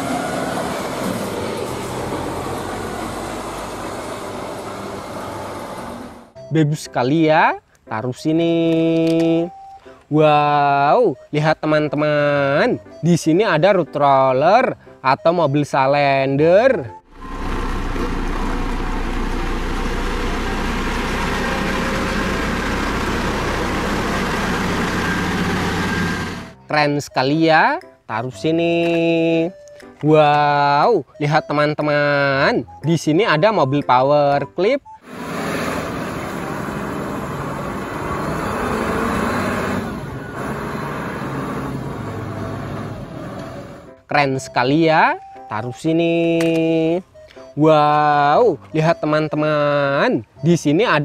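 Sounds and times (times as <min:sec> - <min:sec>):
diesel engine rumbling: 0:00.0 - 0:06.5, 0:16.9 - 0:26.8, 0:34.8 - 0:44.0.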